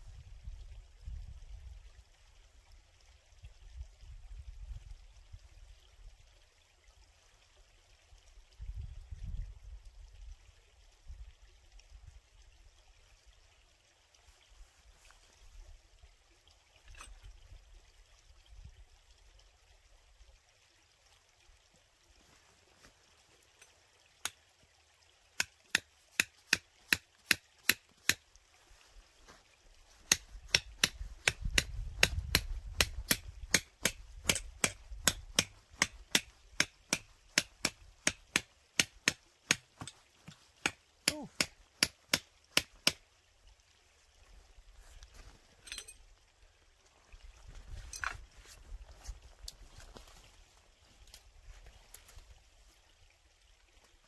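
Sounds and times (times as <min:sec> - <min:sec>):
hand tool strikes: 0:25.4 - 0:28.2, 0:30.1 - 0:40.0, 0:40.6 - 0:43.0.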